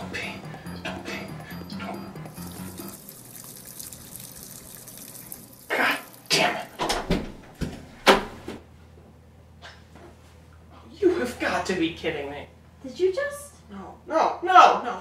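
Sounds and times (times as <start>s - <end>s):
faint steady water hiss: 0.0s - 7.1s.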